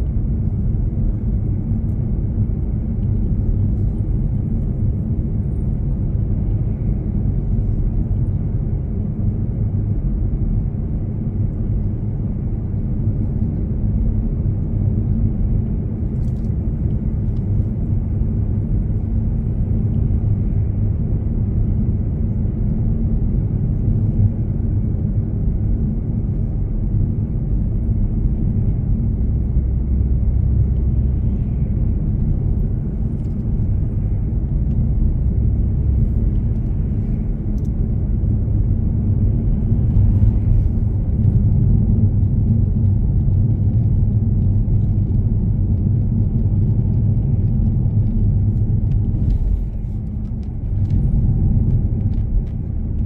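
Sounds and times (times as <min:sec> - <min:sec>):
car engine and tyres rumbling: 0:00.0 - 0:53.0.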